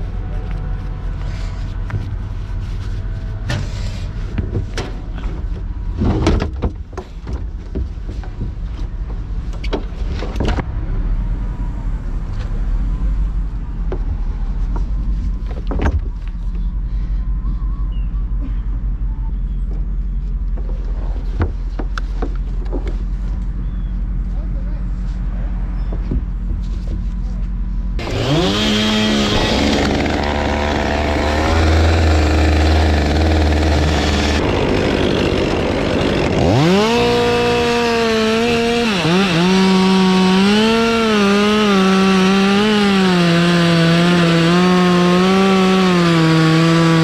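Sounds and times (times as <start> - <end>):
knocks and clunks from boom: 3.4 - 10.7, 13.8 - 16.2
truck engine running: 26.3 - 47.0.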